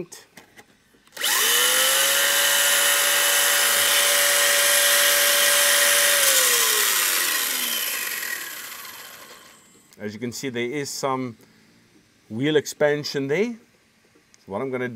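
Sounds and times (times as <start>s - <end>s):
toy car motor whining: 1.1s - 9.7s.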